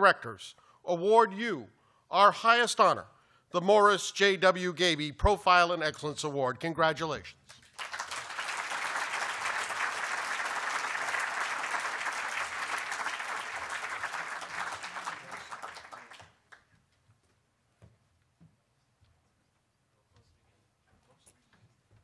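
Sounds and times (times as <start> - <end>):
audience applauding: 7.7 - 16.6.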